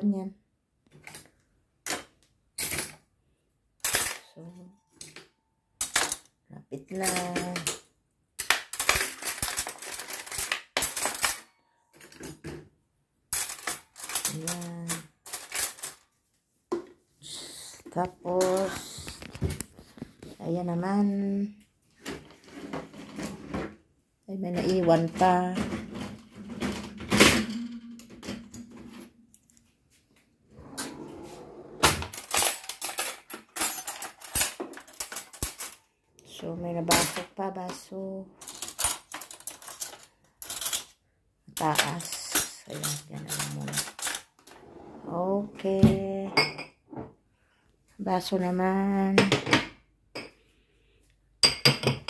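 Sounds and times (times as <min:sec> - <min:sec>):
metal cutlery clattering into tray: 0:01.9 - 0:03.0, 0:03.8 - 0:04.4, 0:05.8 - 0:06.3, 0:06.9 - 0:07.8, 0:08.4 - 0:12.5, 0:13.3 - 0:16.1, 0:31.9 - 0:35.9, 0:38.4 - 0:40.9, 0:41.6 - 0:44.6
drawer sliding open: 0:30.5 - 0:32.2, 0:44.5 - 0:45.2.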